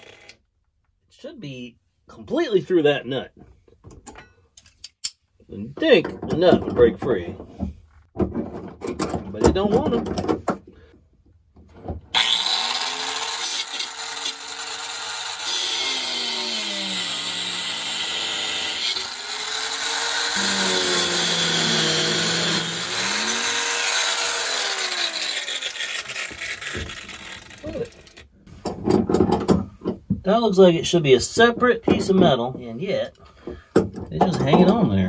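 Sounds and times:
oscillating multi-tool cutting metal: 0.0s - 0.4s, 12.2s - 28.2s.

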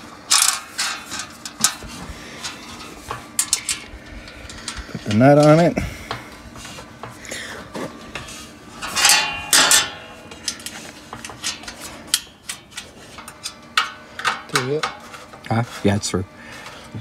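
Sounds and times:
ringing metal clanks: 8.8s - 12.6s.

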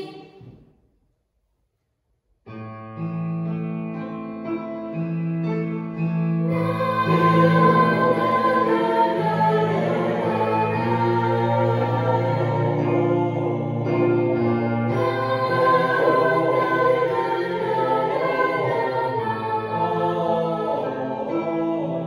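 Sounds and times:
choir singing in parts: 0.0s - 0.6s, 6.4s - 22.0s.

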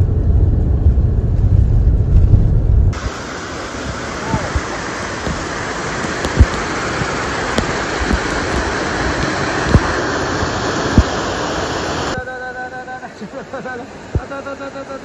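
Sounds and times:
low thumps: 0.0s - 3.2s
waterfall rushing over rocks: 3.0s - 15.0s.

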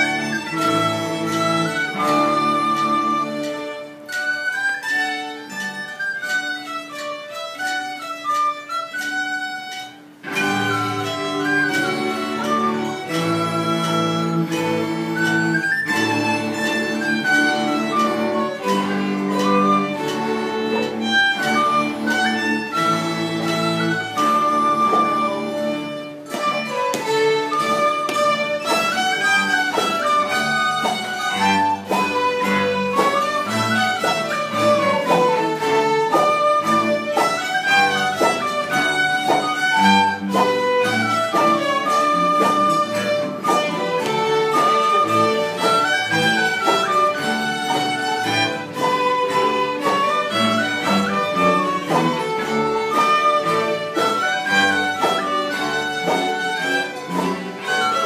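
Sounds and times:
folk string orchestra playing: 0.0s - 58.0s.

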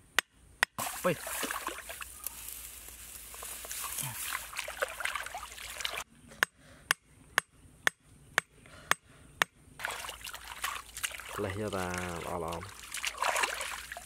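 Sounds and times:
water trickling and splashing: 0.8s - 6.1s, 9.8s - 14.0s.

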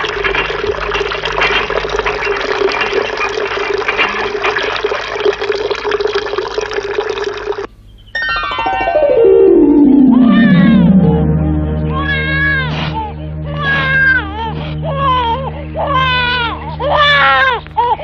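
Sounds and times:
cartoon water gushing and splashing: 0.0s - 7.7s
falling whistle-like glide: 8.0s - 14.8s.

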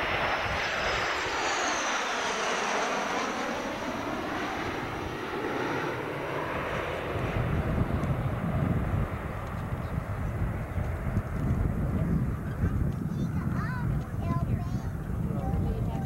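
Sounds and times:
jet engine roar: 0.0s - 16.0s
low uneven rumble: 7.4s - 16.0s.

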